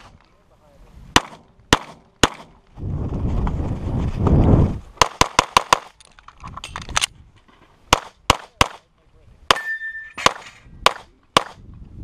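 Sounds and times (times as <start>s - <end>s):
pistol shots: 1.2s - 2.6s, 9.5s - 11.6s.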